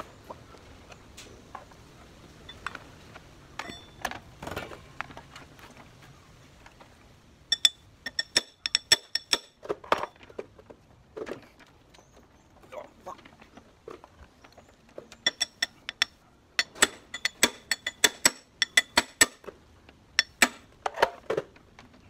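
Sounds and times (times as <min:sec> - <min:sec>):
ratchet wrench clicking: 0:07.5 - 0:09.5, 0:15.3 - 0:19.4
tools being handled: 0:07.5 - 0:10.2, 0:15.2 - 0:19.4, 0:20.2 - 0:20.6.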